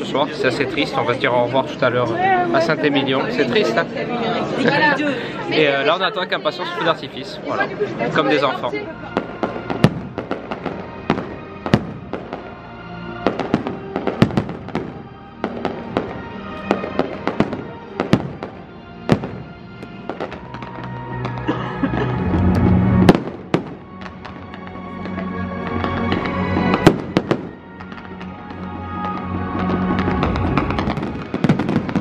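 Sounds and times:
music playing: 0.0 - 32.0
fireworks bursting: 8.6 - 21.5, 22.1 - 32.0.

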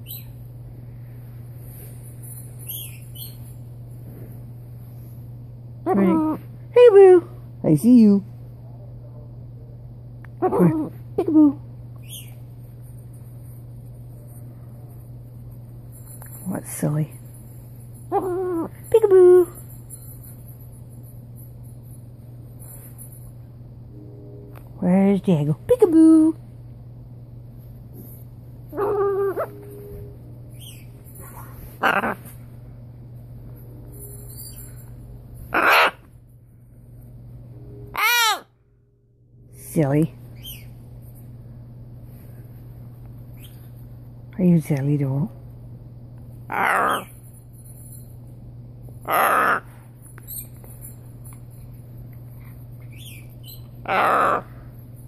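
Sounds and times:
macaw harsh squawk: 35.5 - 36.1, 37.9 - 38.5, 46.5 - 47.1, 49.1 - 49.7, 53.0 - 54.5
macaw calling: 35.6 - 36.0, 38.0 - 38.5, 49.1 - 49.6, 53.9 - 54.5.

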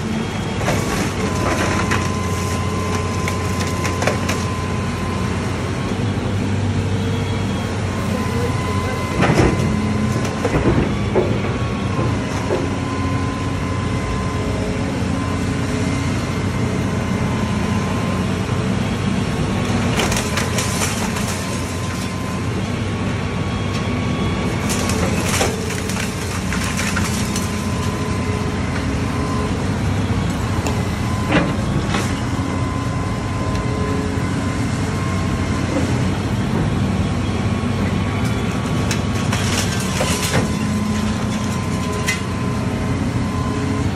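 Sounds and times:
excavator diesel engine running: 0.0 - 43.9
wood crunching and splintering: 0.4 - 4.7, 19.6 - 22.5, 24.4 - 29.0, 38.4 - 42.6.

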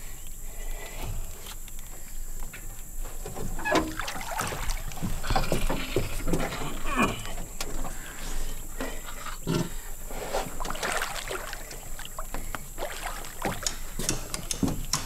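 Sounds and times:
water sloshing and splashing: 3.1 - 8.2, 10.2 - 14.8.

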